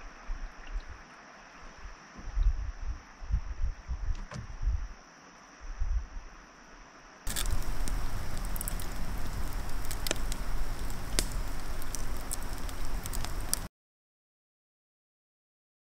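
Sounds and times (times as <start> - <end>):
wood fire crackling: 7.3 - 13.7.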